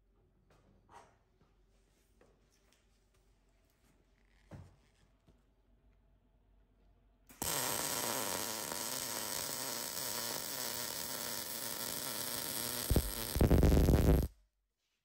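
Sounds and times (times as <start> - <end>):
harsh hissing shop tool: 7.4 - 14.3.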